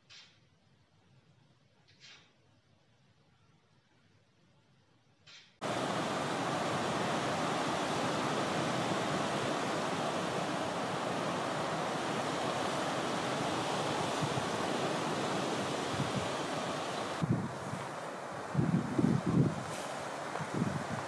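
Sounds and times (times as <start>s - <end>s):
volcano eruption rushing: 5.6s - 21.0s
wind on microphone: 5.6s - 21.0s.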